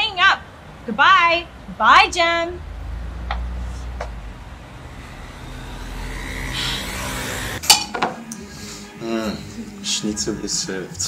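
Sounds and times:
city traffic rumble: 0:00.0 - 0:08.3
vehicle passing: 0:00.0 - 0:09.7
glass clinking: 0:07.6 - 0:08.1.

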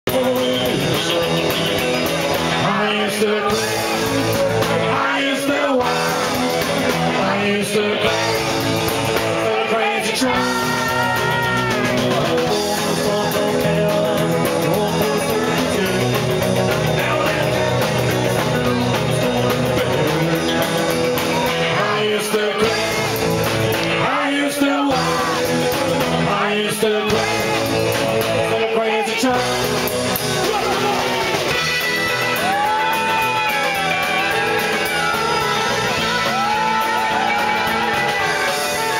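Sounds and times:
rock and roll band playing: 0:00.0 - 0:38.9
man singing into microphone: 0:00.1 - 0:23.2, 0:23.9 - 0:31.2.

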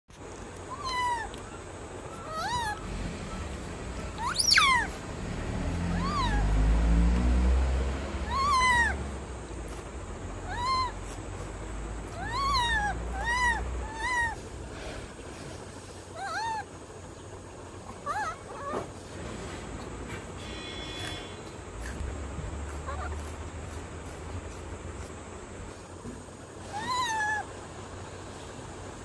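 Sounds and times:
monkey coo calls: 0:00.7 - 0:05.0, 0:05.7 - 0:06.7, 0:08.2 - 0:09.1, 0:10.4 - 0:11.3, 0:12.0 - 0:14.6, 0:16.1 - 0:16.9, 0:17.7 - 0:18.9, 0:22.7 - 0:23.4, 0:26.6 - 0:27.6
monkey squeal: 0:00.7 - 0:06.7, 0:08.2 - 0:09.1, 0:10.4 - 0:11.4, 0:12.0 - 0:14.5, 0:16.1 - 0:16.8, 0:17.9 - 0:18.9, 0:20.4 - 0:22.0, 0:22.7 - 0:23.4, 0:26.6 - 0:27.6.

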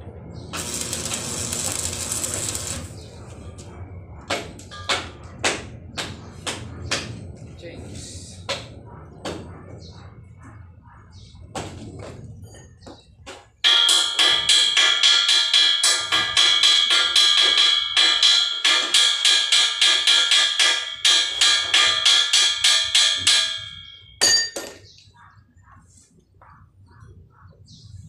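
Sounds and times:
arc welding crackle and whine: 0:00.4 - 0:05.4
sharp metallic knocks: 0:04.3 - 0:07.2, 0:12.8 - 0:25.0.

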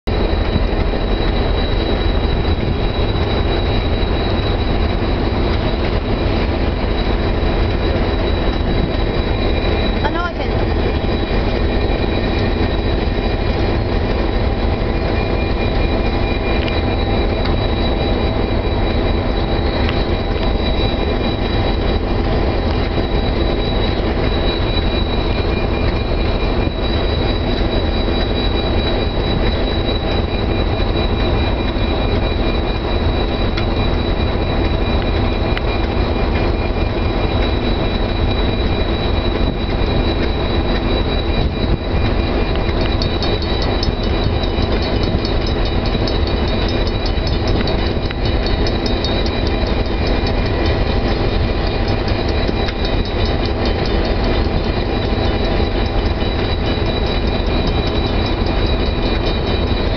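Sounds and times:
locomotive engine whine: 0:00.0 - 0:59.9
fast even ticking: 0:42.5 - 0:59.9.

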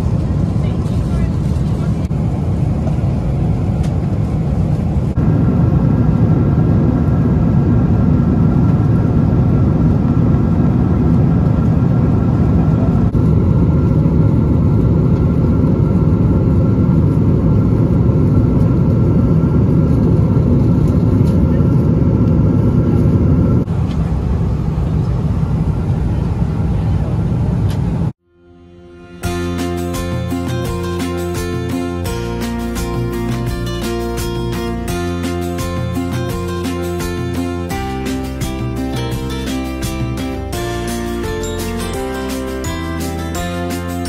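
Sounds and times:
jet engine rumble in aircraft cabin: 0:00.0 - 0:28.2.

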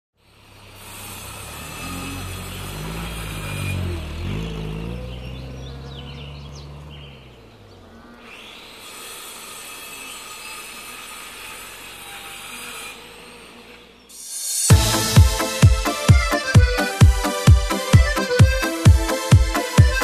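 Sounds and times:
vehicle engine running: 0:00.2 - 0:08.8, 0:14.7 - 0:20.0.

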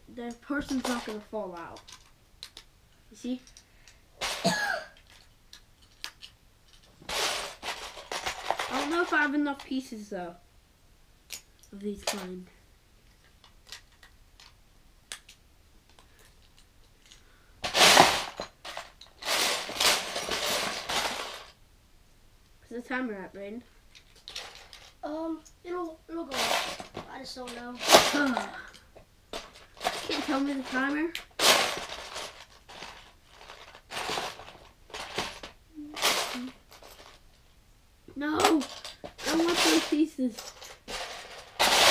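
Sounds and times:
plastic pieces rattling in a bin: 0:00.2 - 0:02.6, 0:04.2 - 0:09.7, 0:16.3 - 0:21.6, 0:23.9 - 0:25.0, 0:26.1 - 0:37.2, 0:38.2 - 0:41.9
plastic bricks clattering: 0:00.2 - 0:02.7, 0:04.2 - 0:09.7, 0:13.2 - 0:21.6, 0:23.9 - 0:25.0, 0:26.3 - 0:37.2, 0:38.3 - 0:41.9
plastic bricks clicking: 0:01.7 - 0:02.7, 0:05.0 - 0:06.9, 0:13.3 - 0:17.2.

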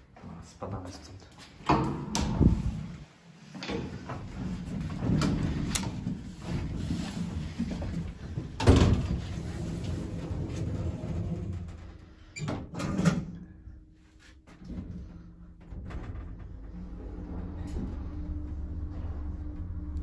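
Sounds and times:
mechanical hum: 0:00.1 - 0:20.0
lift doors sliding shut: 0:15.7 - 0:20.0.

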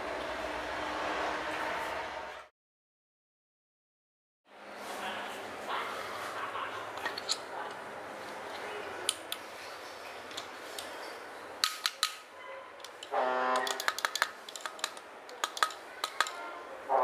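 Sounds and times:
sharp metal clicks and taps: 0:11.6 - 0:12.2, 0:12.8 - 0:16.4.

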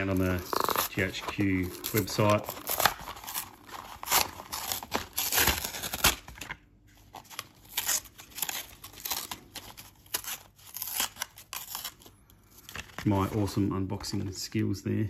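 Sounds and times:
blister pack being torn open: 0:00.0 - 0:13.0.

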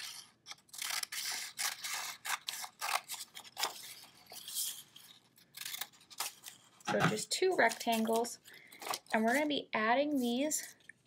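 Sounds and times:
scissors snipping paper: 0:00.0 - 0:09.5
paper rustling: 0:00.9 - 0:09.5.

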